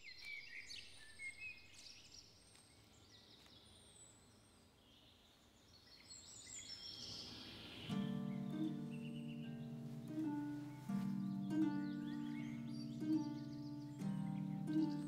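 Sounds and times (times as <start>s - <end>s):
soft outdoor hush: 6.6s - 15.0s.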